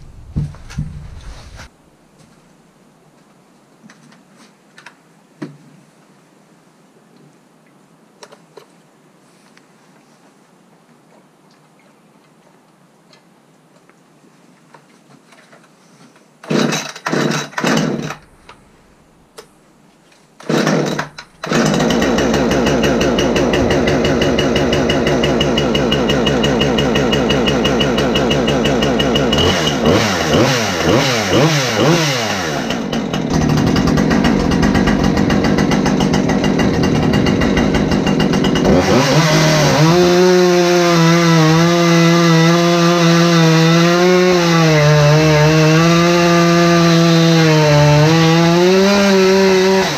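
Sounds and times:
chainsaw cord pulls: 16.4s - 18.9s, 20.4s - 49.9s
chainsaw cutting into log: 16.4s - 19.0s, 20.4s - 49.9s
chainsaw engine revving and idling: 16.5s - 19.0s, 20.5s - 49.9s.

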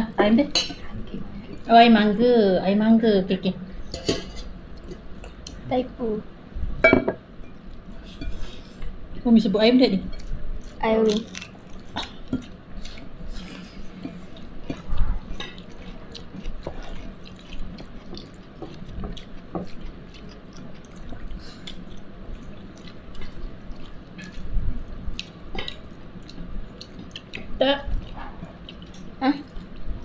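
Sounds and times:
wet eating squishes: 10.2s - 30.0s.

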